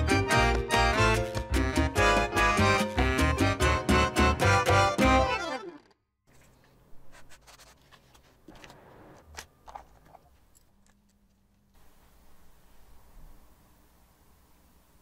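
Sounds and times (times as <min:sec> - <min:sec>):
background music: 0:00.0 - 0:05.9.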